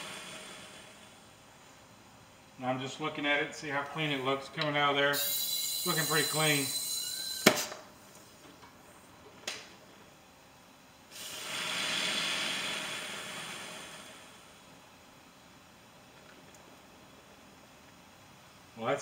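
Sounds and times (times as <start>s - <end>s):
pressurized canister hissing: 5.1s - 7.8s, 11.1s - 14.6s.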